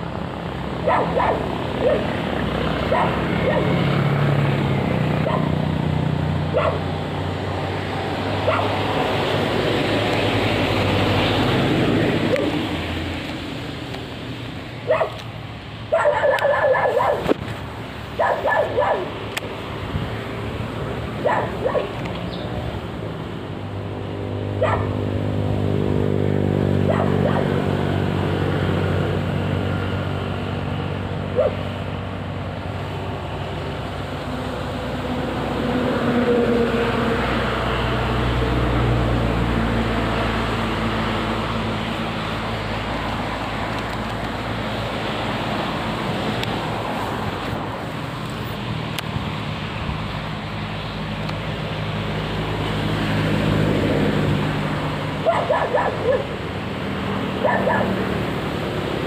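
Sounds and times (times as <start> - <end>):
low engine hum: 0.0 - 59.0
dog barking: 0.8 - 2.2, 2.9 - 3.8, 5.2 - 5.6, 6.5 - 6.8, 8.4 - 8.7, 14.9 - 15.2, 15.9 - 17.3, 18.2 - 19.1, 21.2 - 22.0, 24.6 - 25.0, 26.8 - 27.6, 31.3 - 31.6, 55.2 - 56.4, 57.4 - 58.0.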